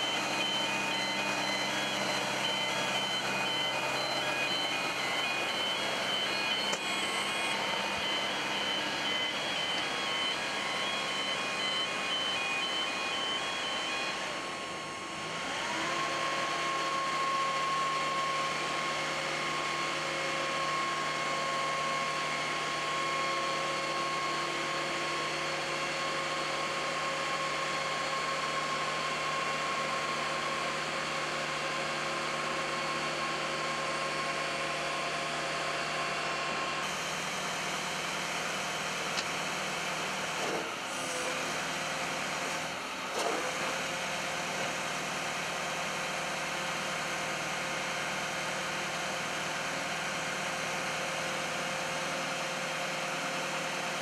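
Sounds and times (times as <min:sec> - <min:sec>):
high beeping: 0:00.0 - 0:14.2
motor whine: 0:00.0 - 0:46.6.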